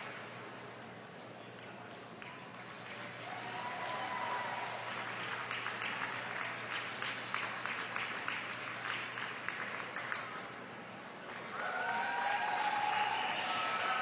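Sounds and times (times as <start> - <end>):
audience applauding: 2.5 - 14.0.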